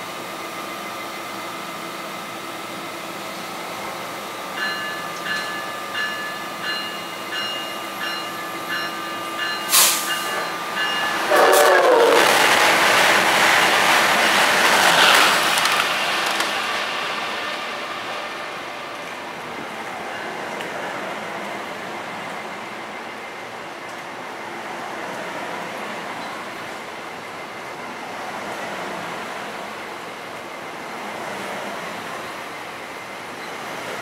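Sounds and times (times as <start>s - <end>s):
electric locomotive humming: 0.0s - 34.0s
train rushing past: 3.1s - 34.0s
locomotive bell ringing: 4.5s - 11.7s, 20.0s - 20.6s
train horn: 11.0s - 12.4s.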